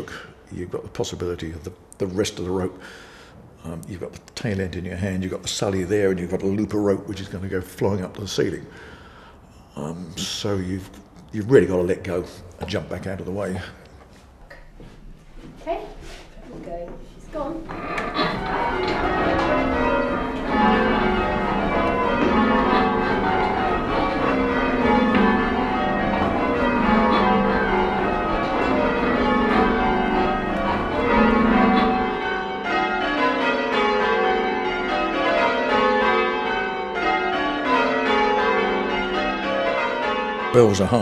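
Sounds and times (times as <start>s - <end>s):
church bells ringing: 17.4s - 41.0s.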